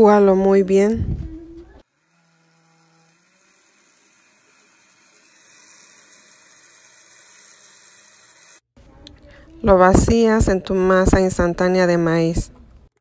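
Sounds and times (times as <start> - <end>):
blender whirring: 1.8 - 8.7.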